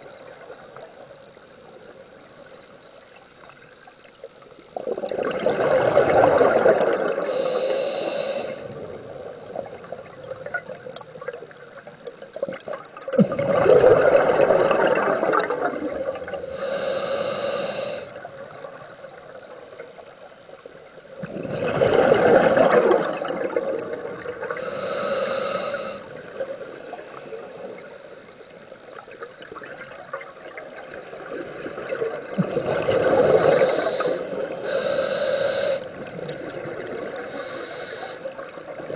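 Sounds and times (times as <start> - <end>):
hissing whistling inhale: 7.2 - 8.8, 16.5 - 18.2, 24.5 - 26.2, 33.1 - 35.9, 37.1 - 38.5
regulator exhale bubbling: 13.1 - 18.7, 21.2 - 28.4, 31.6 - 38.9.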